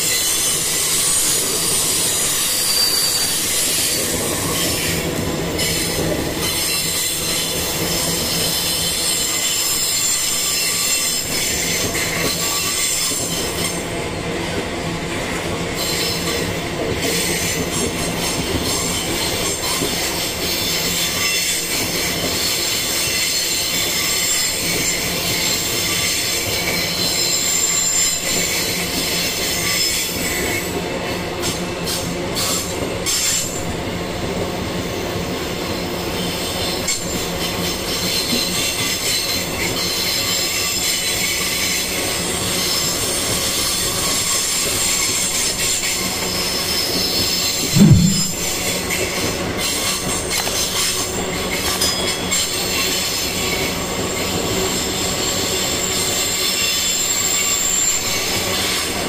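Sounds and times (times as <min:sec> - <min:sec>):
high wheel squeal: 0:00.0 - 0:04.9
train wheels on rails: 0:00.0 - 0:59.0
loud thump: 0:47.6 - 0:48.7.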